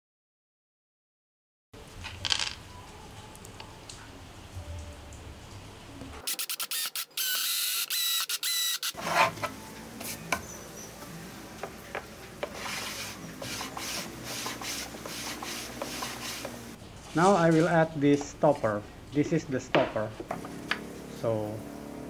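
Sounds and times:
cordless drill whining: 6.3 - 9.0
board rubbing on wooden table: 9.0 - 10.2, 12.4 - 16.7.

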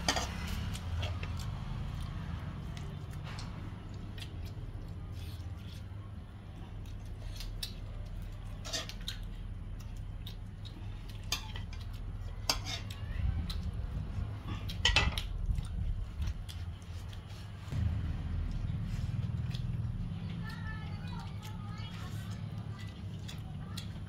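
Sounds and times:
metal plate and dishes clinking: 0.0 - 0.4, 12.4 - 12.9, 14.7 - 15.3
steady low hum: 0.0 - 24.0.

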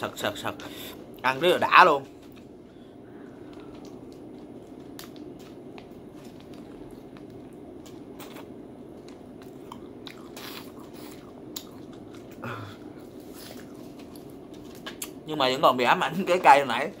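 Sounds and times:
steady low hum: 0.0 - 17.0
crunchy chewing: 3.2 - 15.2.

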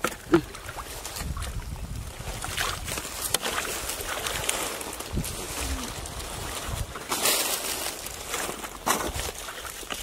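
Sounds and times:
hands splashing in muddy water: 0.0 - 10.0
wind rumble on microphone: 0.5 - 8.3.

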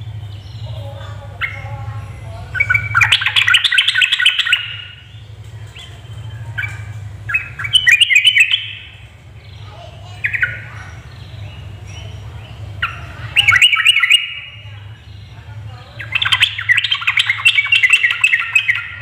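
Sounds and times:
bird chattering calls: 0.0 - 19.0.

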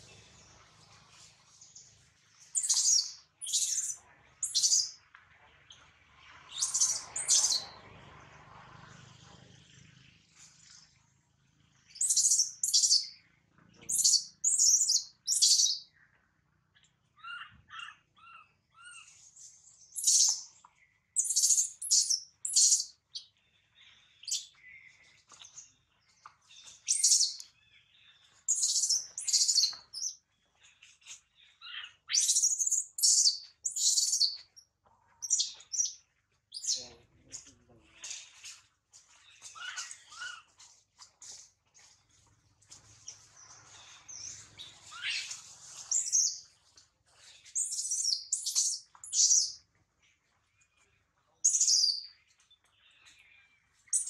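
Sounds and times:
baby monkey chirping cries: 17.2 - 19.1, 39.5 - 40.5.

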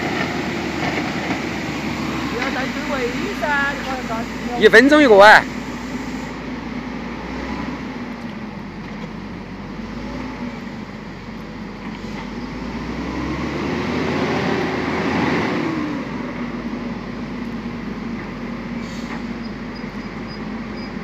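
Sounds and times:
machine engine running and revving: 5.5 - 17.0.

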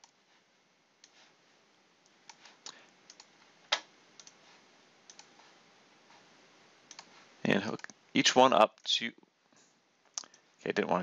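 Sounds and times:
computer mouse clicking: 2.0 - 4.4, 5.1 - 5.5, 6.9 - 7.2, 10.1 - 10.4.

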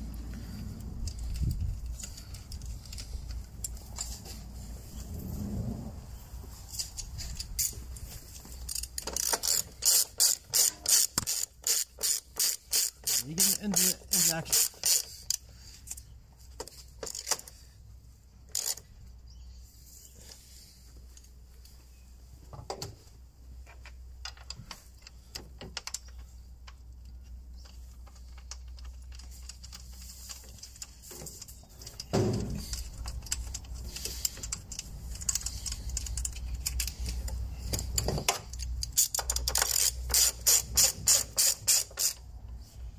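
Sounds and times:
socket ratchet wrench clicking: 8.7 - 15.4, 32.0 - 42.2
clicks and taps of handled fittings: 23.6 - 42.6.

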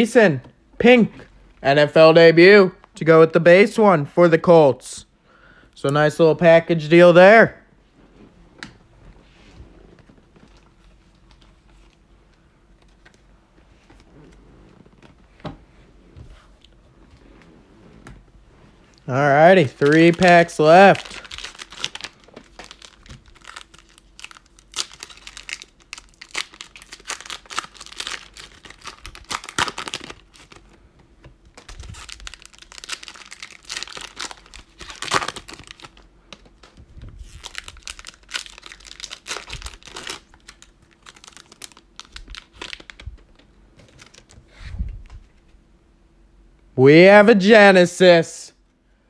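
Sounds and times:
plastic wrapper crinkling: 19.0 - 30.8, 31.4 - 44.4.

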